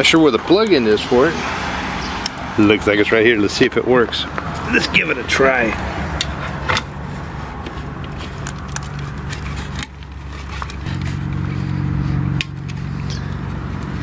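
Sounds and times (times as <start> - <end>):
low mechanical hum: 6.2 - 14.0.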